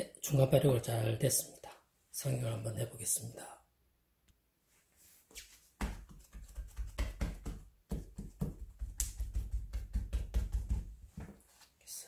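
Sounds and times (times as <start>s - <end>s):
dough thumping on a mat: 5.8s - 11.4s.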